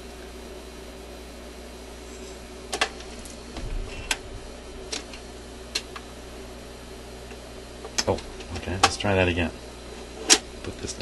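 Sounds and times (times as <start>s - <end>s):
record player humming: 0.0s - 11.0s
dull thump of tone arm: 3.1s - 5.4s.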